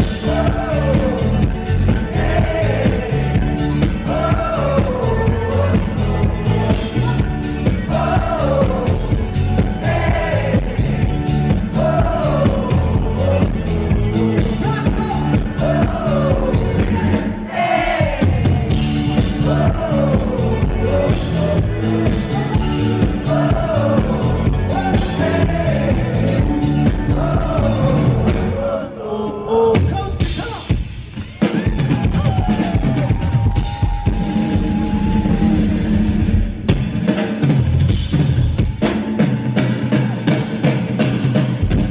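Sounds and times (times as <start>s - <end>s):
man singing: 0.0s - 9.3s, 9.9s - 17.5s, 19.1s - 30.8s
live rock band playing: 0.0s - 41.9s.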